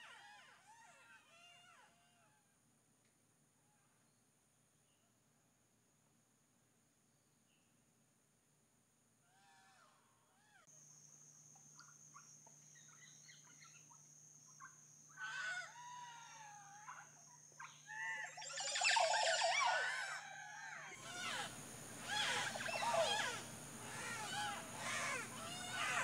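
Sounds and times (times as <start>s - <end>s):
birds calling in chorus: 11.8s - 26.0s.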